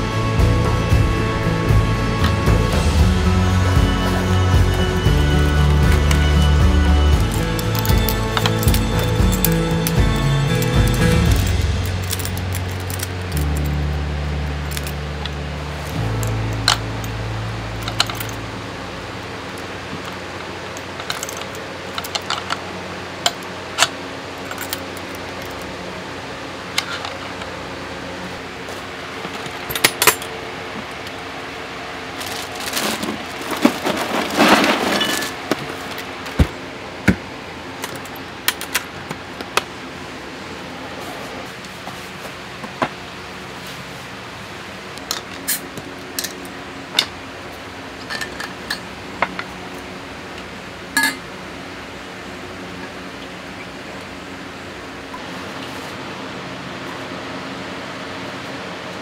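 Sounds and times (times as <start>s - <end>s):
clattering: 32.2s - 36.6s.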